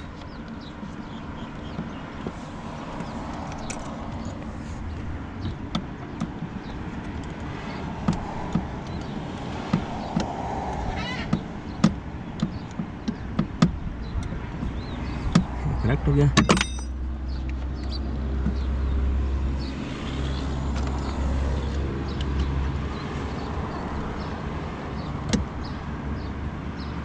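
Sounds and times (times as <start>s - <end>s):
clicks and taps of plastic and metal: 5.4s - 15.6s.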